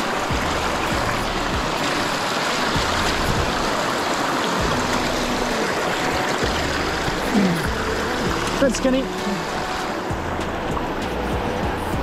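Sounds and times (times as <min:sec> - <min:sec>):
river water rippling over stones: 0:00.0 - 0:12.0.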